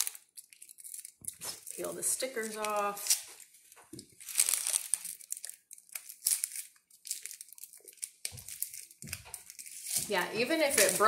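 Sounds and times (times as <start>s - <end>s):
foil crinkling: 0.0s - 11.0s.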